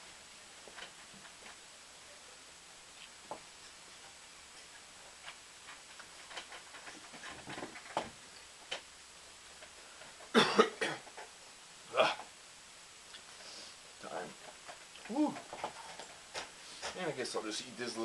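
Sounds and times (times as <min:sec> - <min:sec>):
man coughing: 0:10.3 - 0:11.1.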